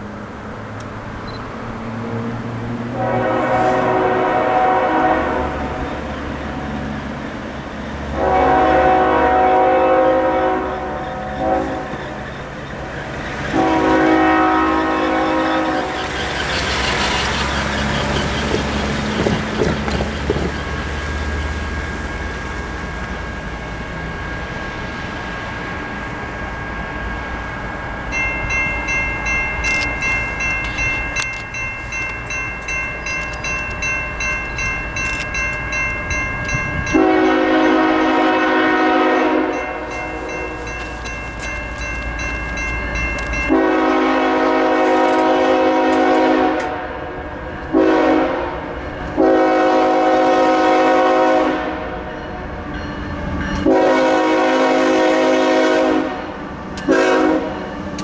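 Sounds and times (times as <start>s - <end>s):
train horn blasts: 2.0s - 6.8s, 8.0s - 12.9s, 13.5s - 17.9s, 36.1s - 41.1s, 43.3s - 52.1s, 53.5s - 57.7s
crossing signal bell dinging: 8.2s - 45.3s, 52.0s - 53.9s.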